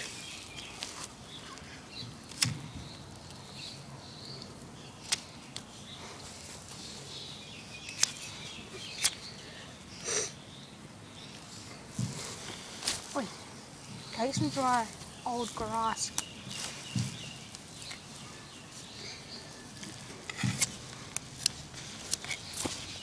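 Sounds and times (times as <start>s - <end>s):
faint outdoor background: 0.0s - 23.0s
sharp clicks: 1.6s - 3.4s, 7.8s - 8.3s, 8.9s - 9.2s
short rustle: 11.3s - 23.0s.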